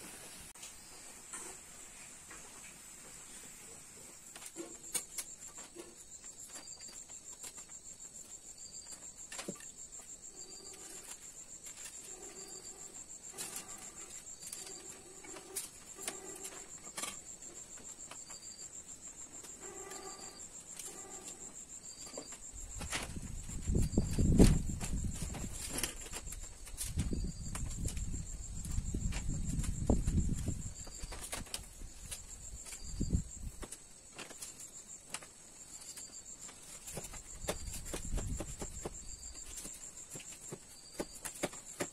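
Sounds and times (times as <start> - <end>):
cricket trilling: 3.8 - 41.9
bamboo slats clicking and knocking: 4.3 - 6.0.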